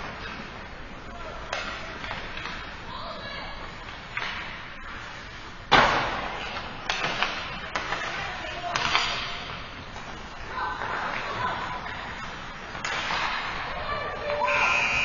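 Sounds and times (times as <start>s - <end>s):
sticks and pucks clacking on ice: 1.4s - 2.8s, 3.8s - 5.1s, 5.8s - 13.8s
hockey puck cracking: 5.7s - 10.1s, 10.8s - 13.6s.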